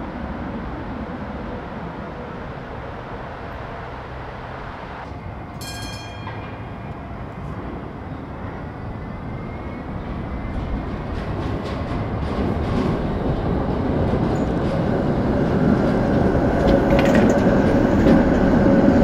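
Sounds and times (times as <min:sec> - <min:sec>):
electric tram rumbling along rails: 0:00.0 - 0:19.0
high ringing tone: 0:05.6 - 0:07.4.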